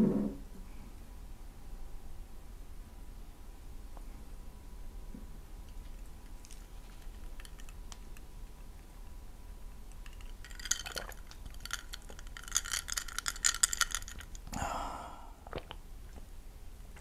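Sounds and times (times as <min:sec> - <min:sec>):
ice cubes clinking in glass: 0:10.0 - 0:14.4.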